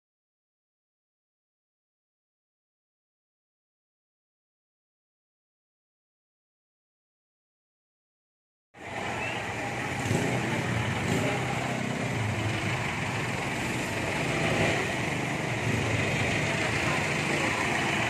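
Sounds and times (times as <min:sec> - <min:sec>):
street traffic: 0:08.8 - 0:18.0.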